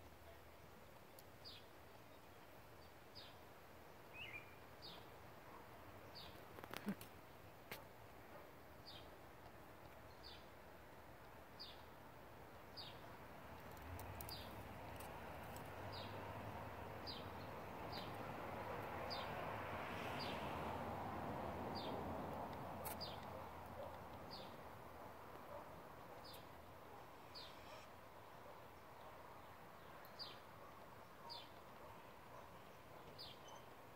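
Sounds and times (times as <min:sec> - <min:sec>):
bird high falling call: 0:27.2 - 0:27.9.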